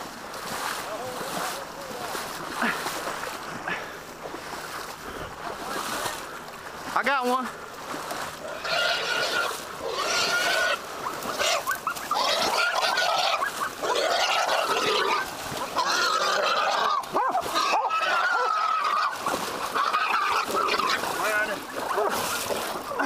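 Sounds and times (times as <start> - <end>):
hog squealing: 8.6 - 22.4.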